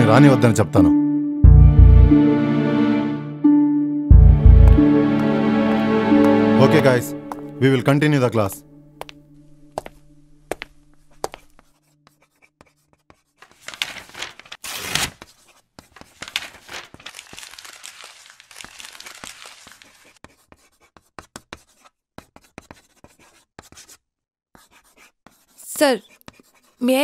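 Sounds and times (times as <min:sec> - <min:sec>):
pens scratching on paper: 0:10.6 - 0:14.6, 0:18.7 - 0:24.0, 0:24.6 - 0:27.0
paper rustling: 0:13.3 - 0:20.2.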